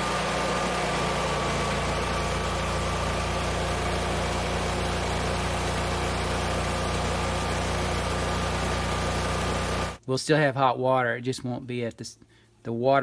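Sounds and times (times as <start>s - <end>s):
generator engine drone: 0.0s - 10.0s.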